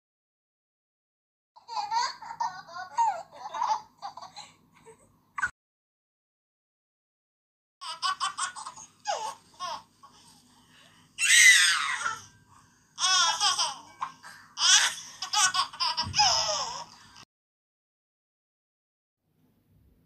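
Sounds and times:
baby giggling: 1.6 - 5.5, 7.8 - 10.3, 13.0 - 17.0.

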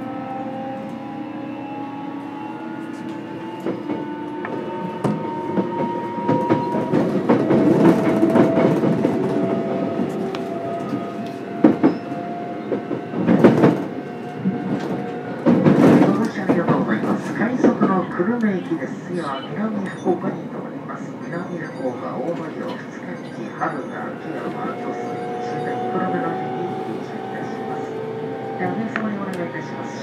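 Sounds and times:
train traction motor whine: 0.0 - 15.8, 23.7 - 30.0
train wheel rumble: 0.0 - 30.0.

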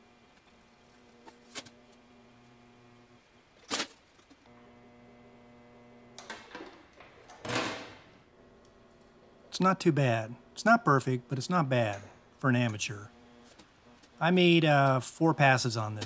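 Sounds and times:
low steady hum: 8.2 - 16.0.

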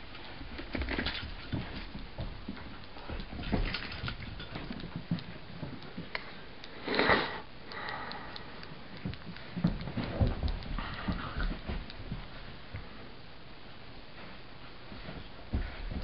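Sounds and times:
dog claws tapping on floor: 0.2 - 6.2, 9.0 - 12.3.

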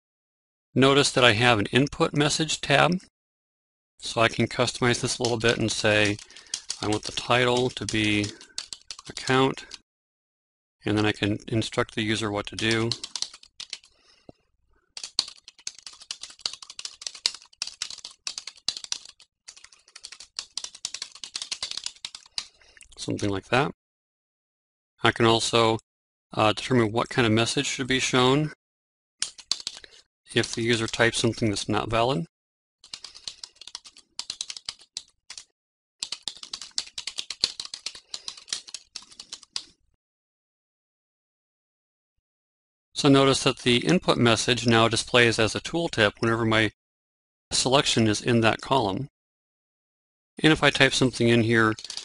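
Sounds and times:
fast typing on keyboard: 4.6 - 9.8, 12.4 - 14.0, 15.0 - 22.6, 29.2 - 31.2, 32.8 - 39.7, 51.6 - 52.0.

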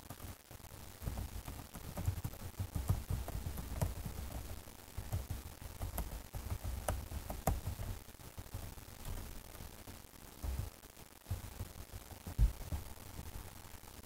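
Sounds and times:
keyboard typing clicks: 1.1 - 8.0.

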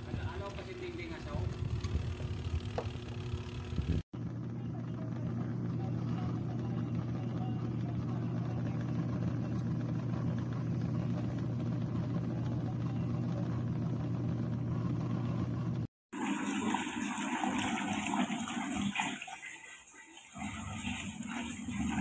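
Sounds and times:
washing machine motor hum: 0.0 - 22.0
water churning and sloshing: 16.1 - 22.0.

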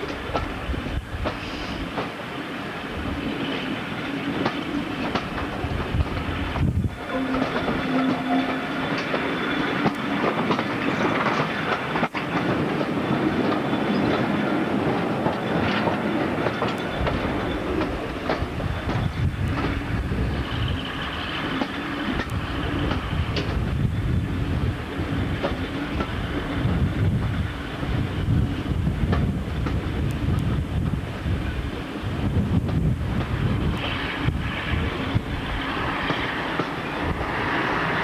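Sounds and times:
diesel locomotive engine working hard: 0.0 - 38.0
train wheels clattering over rail joints: 3.2 - 6.9, 9.0 - 24.2.

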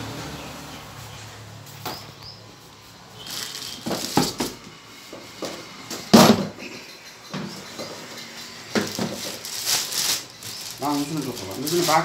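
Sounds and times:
plastic bag crinkling: 3.2 - 4.5, 8.7 - 12.0.

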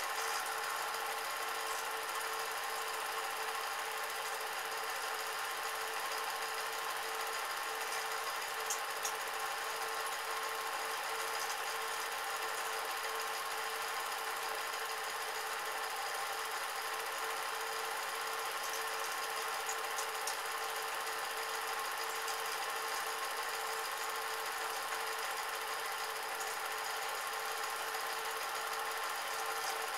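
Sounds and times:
film projector whirring: 0.0 - 29.9.

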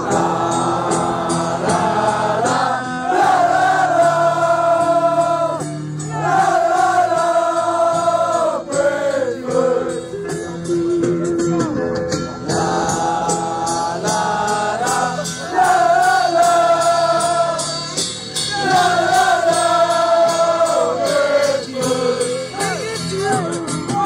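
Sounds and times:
football supporters singing a chant: 0.0 - 10.4, 12.4 - 23.0.

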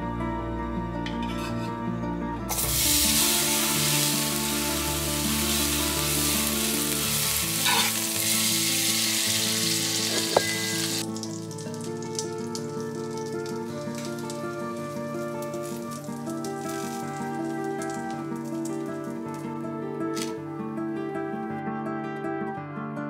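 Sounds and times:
food sizzling in a frying pan: 2.5 - 19.6.

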